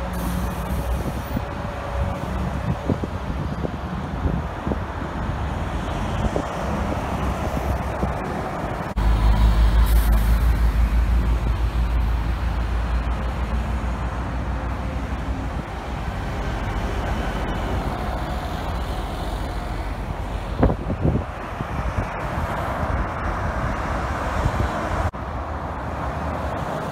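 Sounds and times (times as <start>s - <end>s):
bus diesel engine passing: 0.0s - 26.9s
traffic noise: 0.0s - 26.9s.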